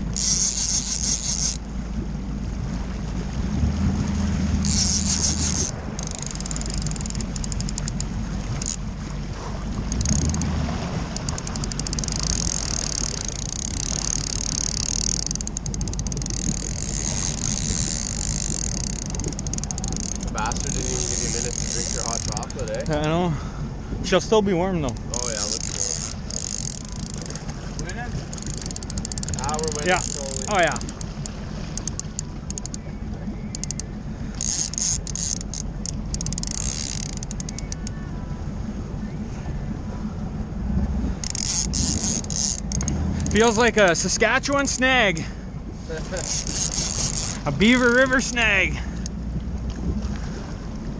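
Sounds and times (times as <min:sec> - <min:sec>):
boat engine running: 0:00.0 - 0:50.9
water rushing along hull: 0:00.0 - 0:50.9
fishing reel ratcheting clicks: 0:00.1 - 0:01.6, 0:04.6 - 0:08.8, 0:09.9 - 0:23.2, 0:24.9 - 0:32.8, 0:33.5 - 0:38.0, 0:41.2 - 0:43.6, 0:46.2 - 0:48.3.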